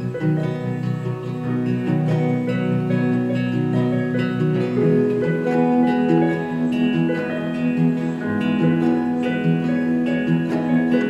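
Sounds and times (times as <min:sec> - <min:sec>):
acoustic guitar music: 0:00.0 - 0:11.0.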